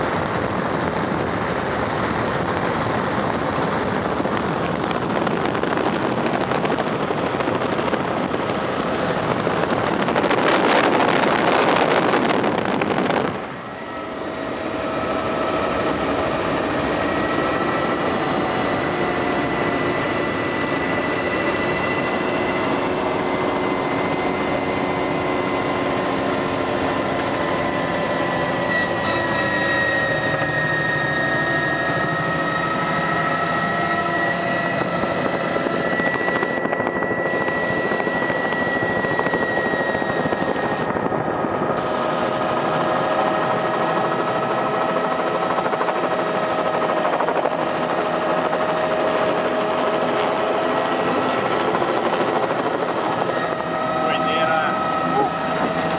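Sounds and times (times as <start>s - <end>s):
helicopter engine and rotor: 0.0s - 55.9s
whine of held tones: 0.0s - 55.9s.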